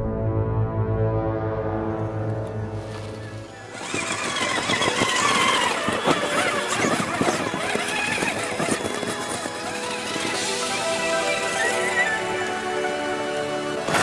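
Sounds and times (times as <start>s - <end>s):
electric motor whining: 2.9s - 14.0s
tire chains clinking: 3.7s - 10.3s.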